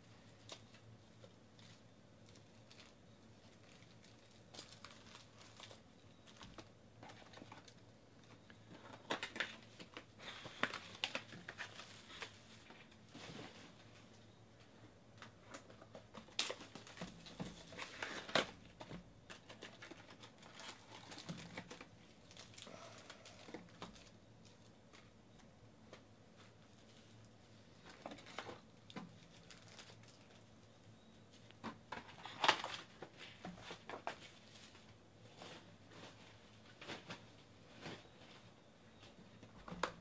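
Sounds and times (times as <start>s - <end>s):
foil wrappers crinkling and tearing: 1.6s - 7.8s, 8.8s - 12.8s, 15.5s - 24.7s, 29.2s - 30.5s.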